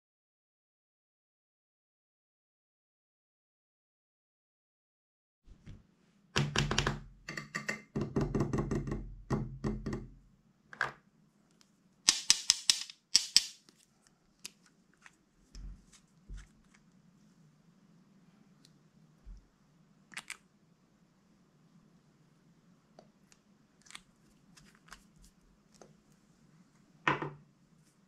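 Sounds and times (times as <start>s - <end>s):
faint steady hum: 13.7s - 28.0s.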